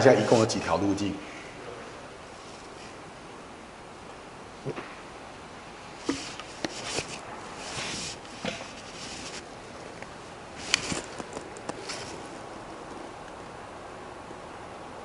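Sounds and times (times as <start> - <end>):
paper rustling: 10.6 - 12.3.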